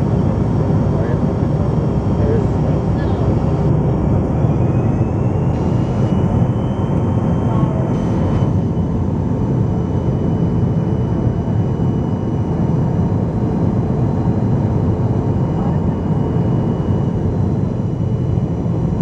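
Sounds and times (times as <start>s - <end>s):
turbofan engines running: 0.0s - 19.0s
faint high whine: 1.0s - 12.6s.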